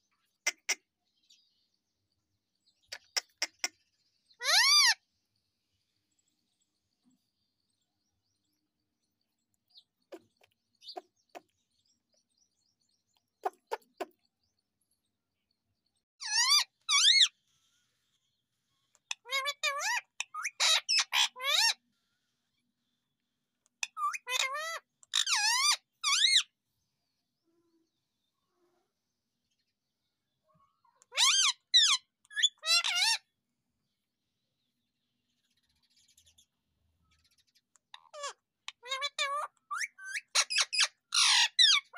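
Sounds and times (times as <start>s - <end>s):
parakeet squawks: 4.4s - 5.0s, 16.2s - 17.3s, 19.0s - 21.8s, 23.8s - 26.5s, 30.9s - 33.2s, 37.8s - 41.9s
parrot calling: 4.4s - 5.0s, 16.2s - 17.3s, 19.0s - 21.8s, 23.8s - 26.4s, 31.0s - 33.2s, 37.8s - 41.9s.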